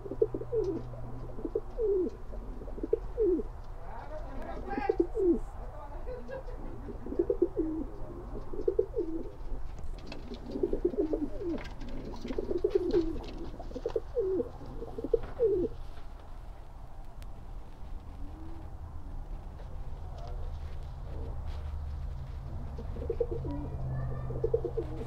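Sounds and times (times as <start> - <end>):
pigeons cooing: 0.0 - 5.6, 6.4 - 15.9, 18.0 - 21.7, 22.3 - 25.0
faint clicks and rustles: 7.9 - 25.0.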